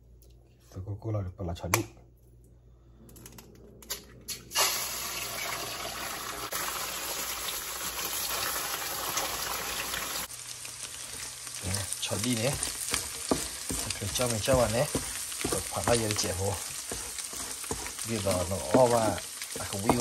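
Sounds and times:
eggs sizzling in hot oil: 0:04.5 - 0:20.0
wooden spatula stirring: 0:11.1 - 0:20.0.

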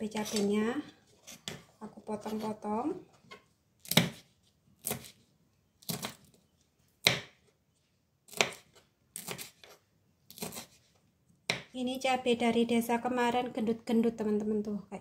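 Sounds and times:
knife slicing on chopping board: 0:03.8 - 0:05.2, 0:08.3 - 0:10.9.

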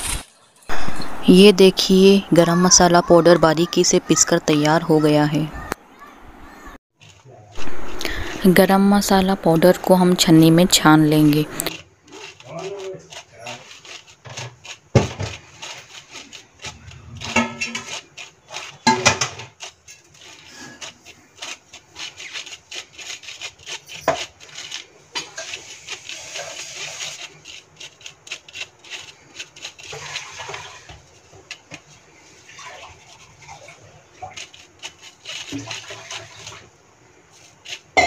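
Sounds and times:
metal spoon scraping wire sieve: 0:07.0 - 0:38.0.

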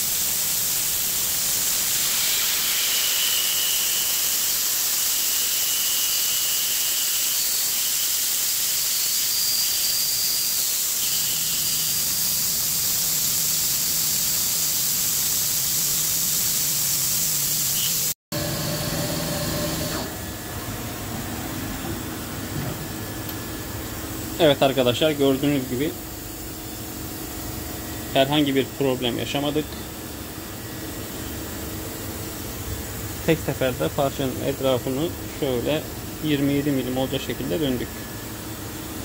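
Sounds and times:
milling machine cutting steel: 0:00.7 - 0:20.2.

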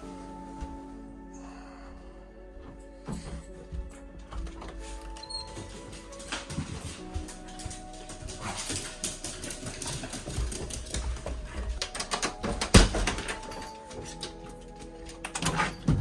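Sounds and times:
background music: 0:00.0 - 0:16.0
footsteps on stairs: 0:02.6 - 0:15.3
dog nails pattering on stairs: 0:03.1 - 0:16.0.

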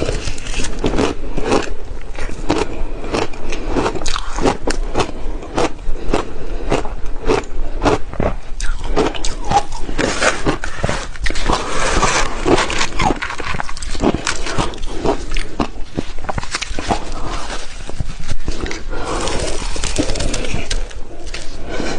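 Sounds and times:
ice crunched between teeth: 0:08.2 - 0:21.6.

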